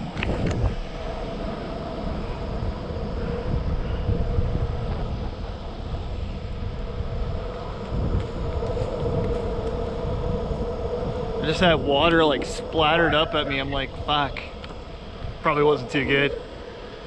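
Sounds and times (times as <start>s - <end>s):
constant hum: 0.0s - 17.0s
skateboard wheels rolling on asphalt: 0.0s - 17.0s.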